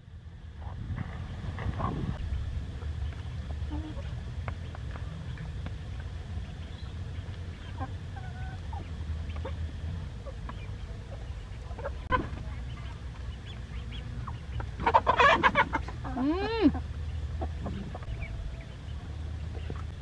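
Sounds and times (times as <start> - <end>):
steady low hum: 0.0 - 20.0
chickens clucking softly: 0.6 - 20.0
chickens pecking: 0.6 - 20.0.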